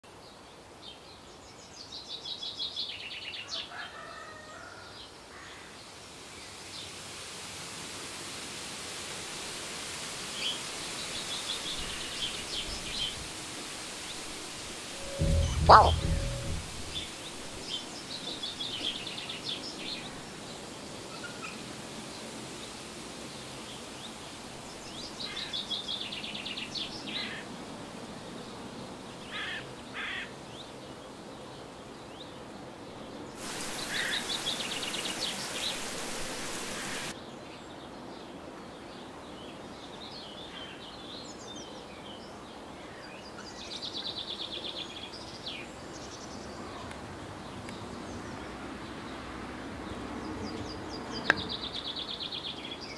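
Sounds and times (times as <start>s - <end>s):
steady background hiss: 5.1s - 49.6s
birds chirping: 15.0s - 17.2s, 33.4s - 37.1s
loud hiss: 33.4s - 37.2s.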